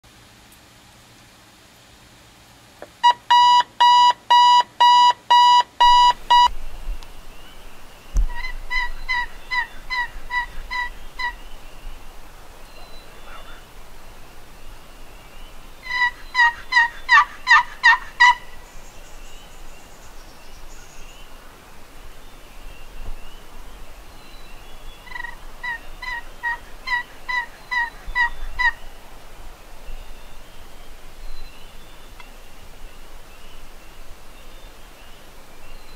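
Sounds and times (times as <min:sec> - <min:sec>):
alarm clock beeping: 0:03.3 - 0:06.5
turkey yelps: 0:08.3 - 0:11.4, 0:15.8 - 0:18.5, 0:25.1 - 0:28.8.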